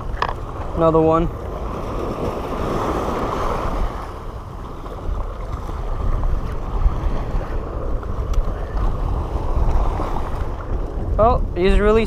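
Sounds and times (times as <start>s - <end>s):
small waves washing over rocks: 0.0s - 10.8s
wind gusting on microphone: 0.0s - 12.0s.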